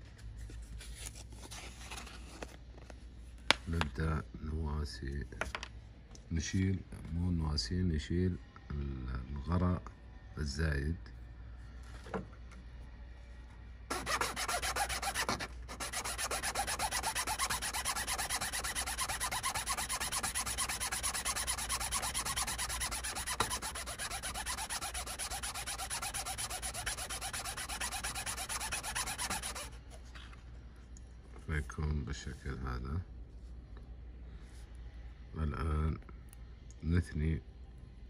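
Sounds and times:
glue rasping on metal file: 0:13.9 - 0:29.7.

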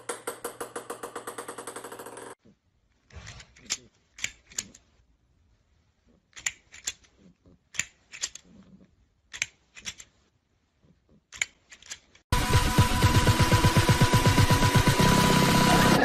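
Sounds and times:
plastic grabber toy clacking: 0:06.3 - 0:08.6, 0:09.3 - 0:10.2, 0:11.3 - 0:12.2.

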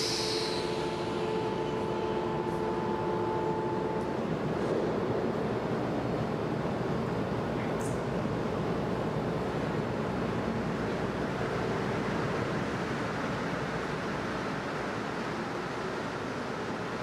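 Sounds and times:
brief high hiss: 0:00.0 - 0:01.6
metro station rushing hum: 0:00.0 - 0:17.0.

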